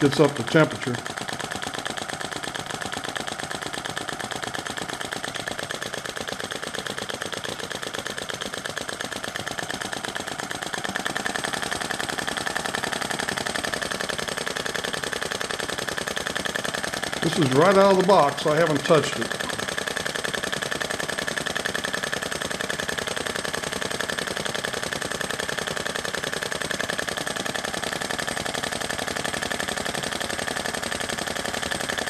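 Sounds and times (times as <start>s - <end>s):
model engine running: 0.0s - 32.0s.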